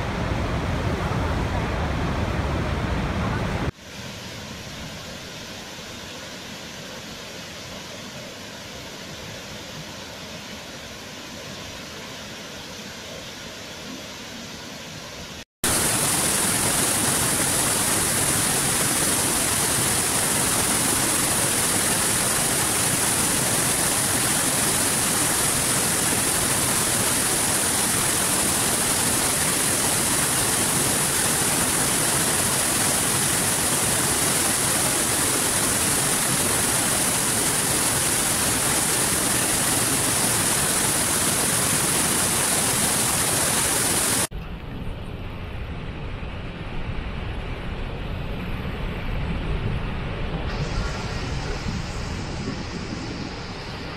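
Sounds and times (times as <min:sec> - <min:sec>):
quieter waterfall rush: 0:00.0 - 0:44.3, 0:46.8 - 0:53.9
water cascading over rocks: 0:15.6 - 0:44.3.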